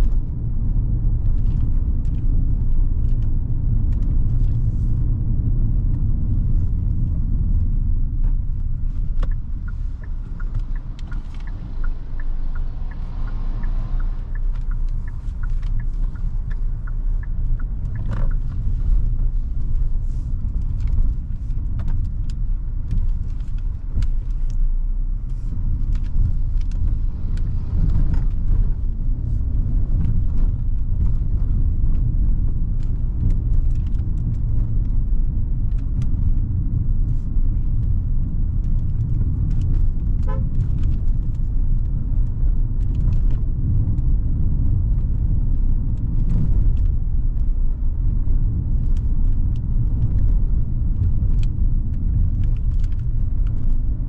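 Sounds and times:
car engine and road rumble: 0:00.0 - 0:54.0
clicks and knocks from road: 0:00.0 - 0:54.0.

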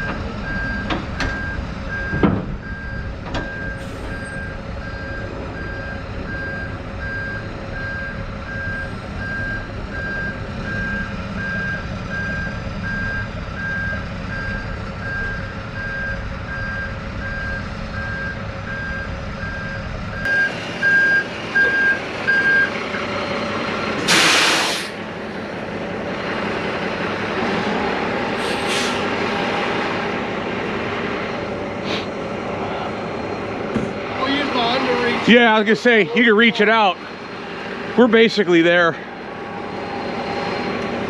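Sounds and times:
truck back-up alarm beeping: 0:00.0 - 0:22.8, 0:32.9 - 0:37.0
diesel engine running: 0:00.0 - 0:41.0
air brake hiss: 0:03.8 - 0:04.3, 0:24.1 - 0:25.0, 0:28.4 - 0:29.1.

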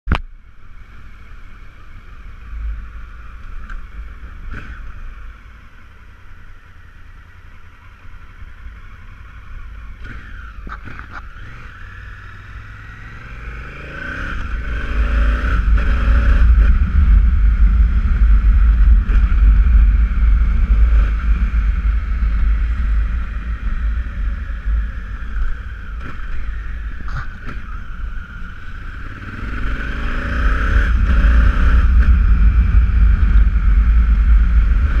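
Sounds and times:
motorcycle engine accelerating: 0:00.1 - 0:35.0.

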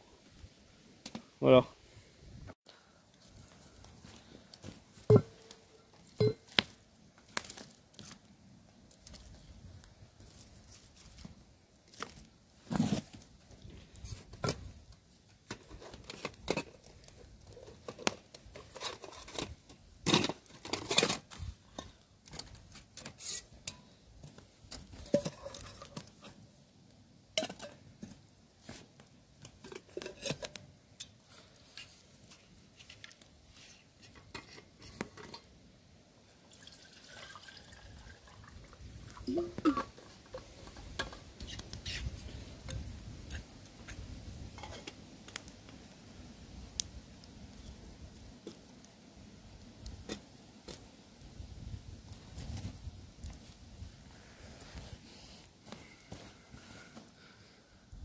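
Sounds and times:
camp gear clicks and rustles: 0:15.3 - 0:26.4.

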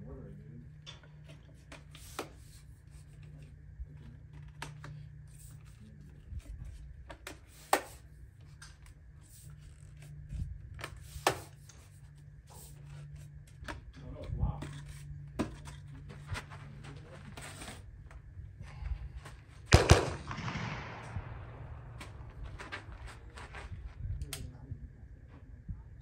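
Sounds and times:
steady low hum: 0:00.0 - 0:26.0
tripod legs clicking and rubbing: 0:00.9 - 0:18.3.

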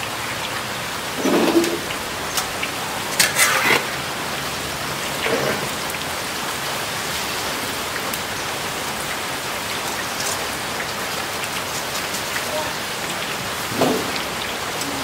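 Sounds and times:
fries sizzling in hot oil: 0:00.0 - 0:15.0
metal skimmer scraping pan: 0:01.2 - 0:02.5, 0:03.1 - 0:04.4, 0:05.1 - 0:05.8.

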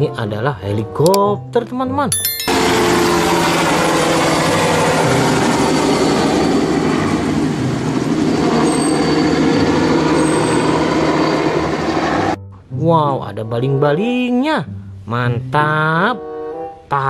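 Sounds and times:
helicopter flying low past: 0:02.6 - 0:12.4.

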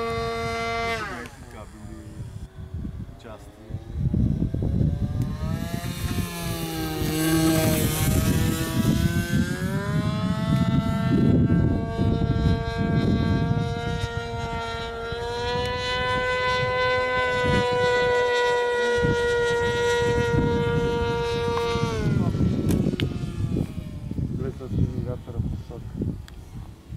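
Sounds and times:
model plane engine buzzing: 0:00.0 - 0:26.9.

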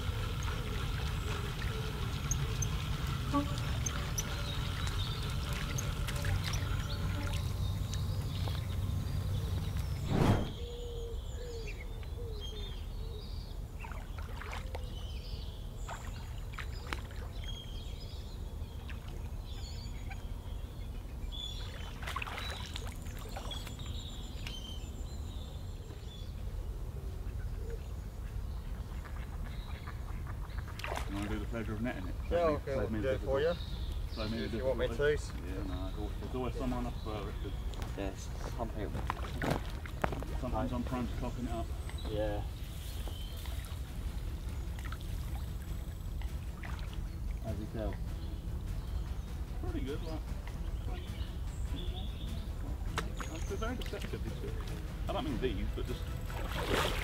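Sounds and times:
birds calling and chirping: 0:00.0 - 0:57.0
loud thump: 0:10.1 - 0:10.6.

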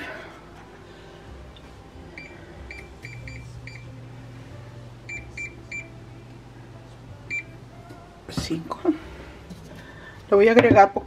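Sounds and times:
low steady hum: 0:00.0 - 0:11.0
cooktop touch control beeps: 0:02.2 - 0:03.9, 0:05.1 - 0:05.9, 0:07.3 - 0:07.6.

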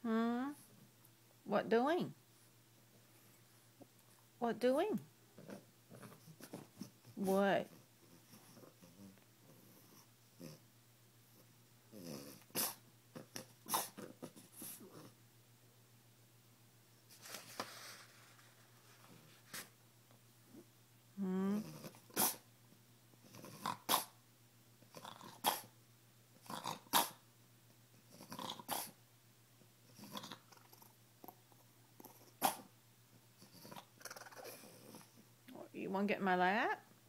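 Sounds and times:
dog huffs and grunts: 0:12.0 - 0:15.0, 0:21.7 - 0:22.4, 0:25.1 - 0:25.7, 0:28.2 - 0:29.0.

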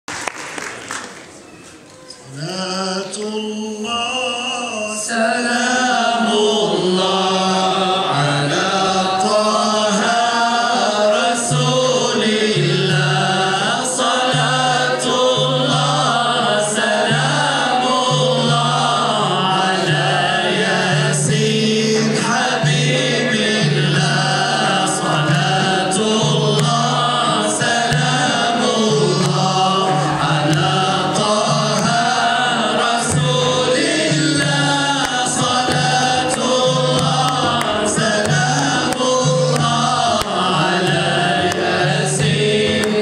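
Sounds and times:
men chanting together: 0:05.1 - 0:43.0
frame drums: 0:11.5 - 0:43.0.

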